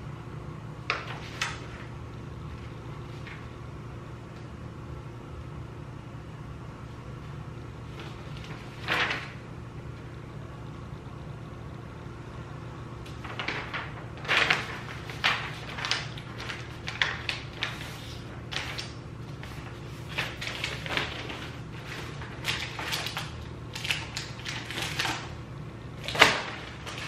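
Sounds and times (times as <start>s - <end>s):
steady low hum: 0.0s - 27.0s
paper pages rustling: 0.9s - 1.9s, 2.5s - 3.5s, 7.9s - 9.4s, 13.1s - 25.4s, 26.0s - 27.0s.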